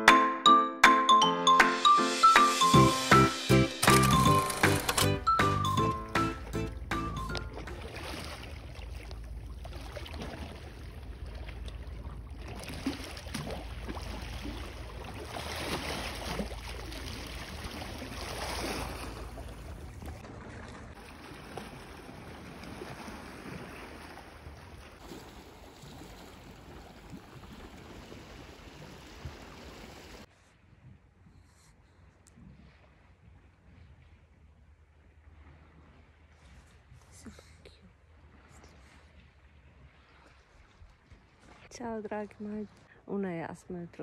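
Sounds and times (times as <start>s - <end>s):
small waves lapping on rocks: 7.7s - 30.3s.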